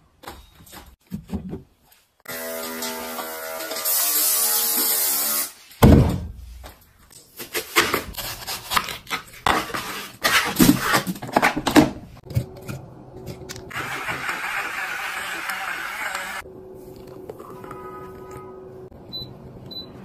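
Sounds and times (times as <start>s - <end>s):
heavy thump: 5.8s - 6.6s.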